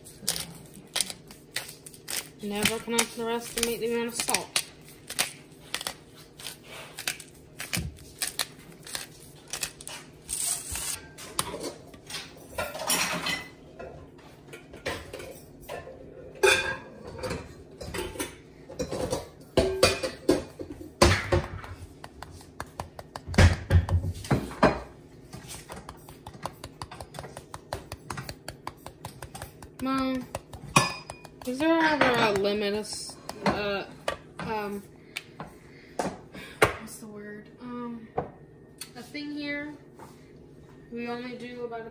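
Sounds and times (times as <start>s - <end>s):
kitchen utensils clattering: 10.9s - 21.5s.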